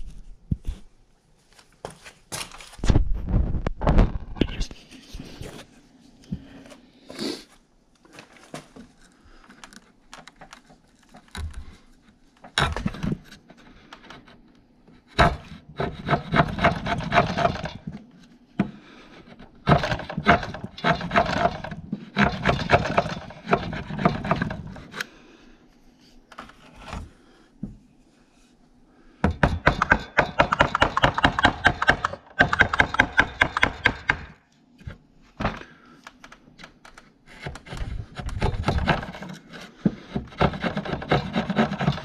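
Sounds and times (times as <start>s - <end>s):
hand tool scraping wood: 12.5s - 14.4s, 15.0s - 18.0s, 19.1s - 25.1s, 29.3s - 34.3s, 37.2s - 42.0s.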